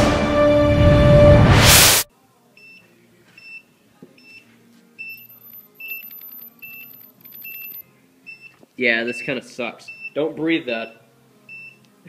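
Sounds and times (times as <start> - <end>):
short high beeps: 5.0 - 8.5.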